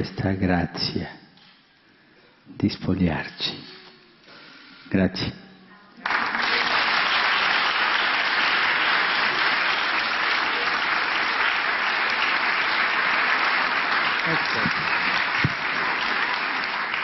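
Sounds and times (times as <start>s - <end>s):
audience applauding: 6.0s - 17.0s.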